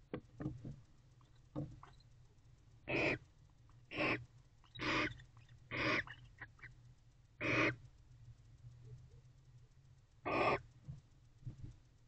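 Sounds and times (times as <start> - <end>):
owl rasping hiss calls: 2.9 - 3.2, 3.9 - 6.7, 7.4 - 7.8, 10.2 - 10.6.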